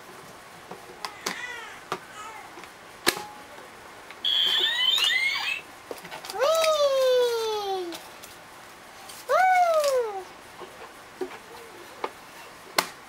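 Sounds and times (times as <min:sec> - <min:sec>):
electronic jingle: 0:04.3 - 0:05.6.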